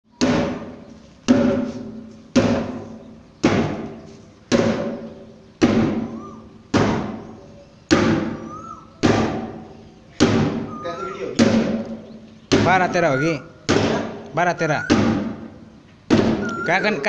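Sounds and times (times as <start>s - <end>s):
sledgehammer striking rubber tyre: 0.1s - 7.2s, 7.9s - 8.4s, 9.0s - 10.7s, 11.4s - 11.9s, 13.6s - 14.2s, 14.9s - 16.5s.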